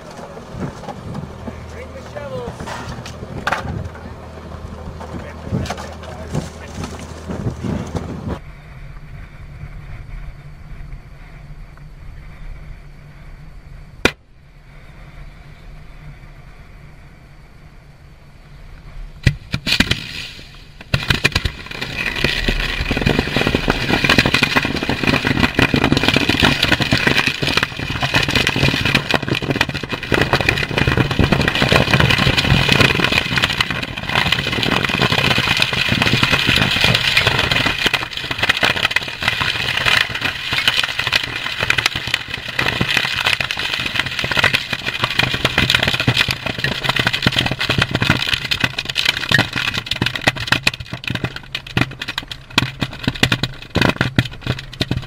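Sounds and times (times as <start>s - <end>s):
ammunition crackling and popping in fire: 19.2s - 55.0s.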